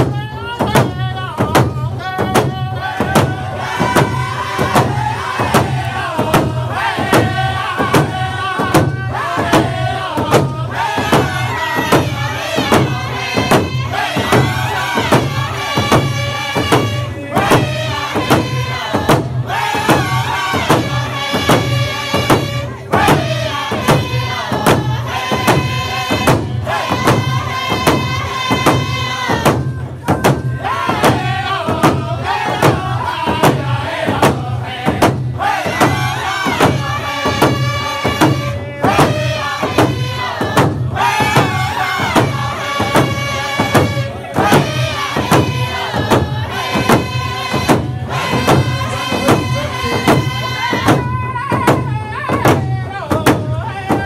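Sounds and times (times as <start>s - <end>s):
hand drums beaten with sticks: 0.0s - 54.0s
men singing together: 0.0s - 54.0s.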